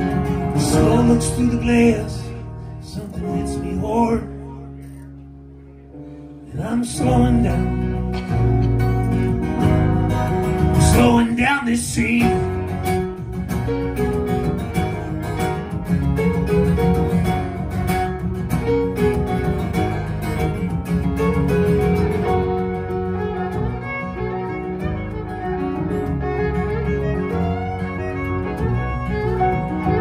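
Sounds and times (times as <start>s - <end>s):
strummed acoustic guitar: 0.0s - 5.3s, 6.0s - 30.0s
bowed fiddle: 0.0s - 6.4s, 7.4s - 30.0s.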